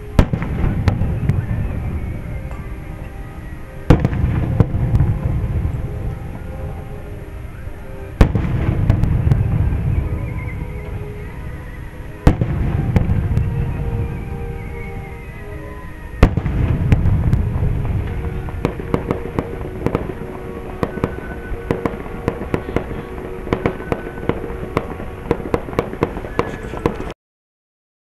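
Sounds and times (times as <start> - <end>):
firework bang: 0.0 - 2.0, 3.9 - 6.1, 8.2 - 10.9, 12.2 - 14.0, 16.2 - 27.1
low rumbling echo: 0.0 - 27.1
music with long held notes: 0.0 - 27.1
crackling pops: 16.2 - 27.2.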